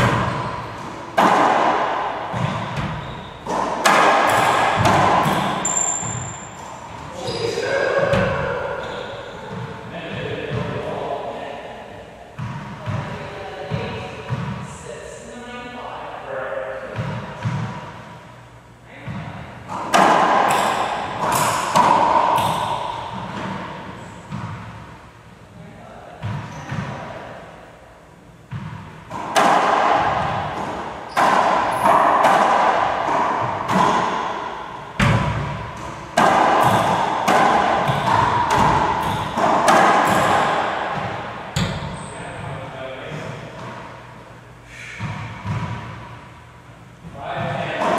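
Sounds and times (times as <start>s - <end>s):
ball striking court walls: 0.0s - 7.4s, 19.0s - 24.9s, 28.5s - 42.2s, 45.0s - 46.2s
racquets hitting ball: 0.0s - 10.9s, 12.4s - 14.7s, 16.9s - 18.0s, 19.0s - 25.0s, 26.2s - 27.2s, 28.4s - 42.5s, 45.0s - 46.2s, 47.0s - 47.9s.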